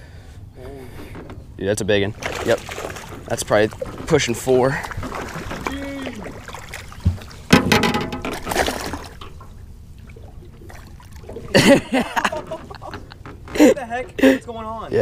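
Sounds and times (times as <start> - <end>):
fish splashing in water: 2.2 - 9.3.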